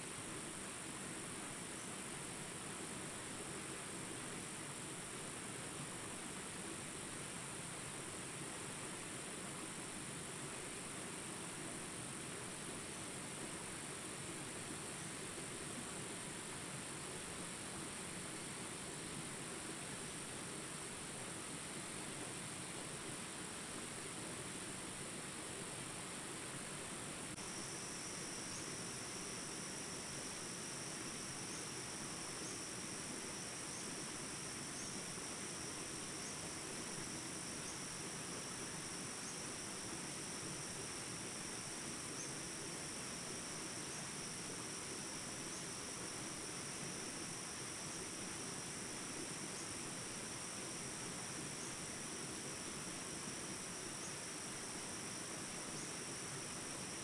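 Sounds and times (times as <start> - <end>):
insects trilling: 27.3 - 57.0.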